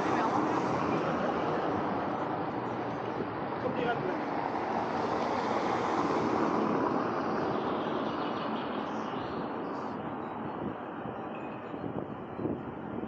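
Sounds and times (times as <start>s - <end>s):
car passing on cobblestones: 0.0s - 9.4s.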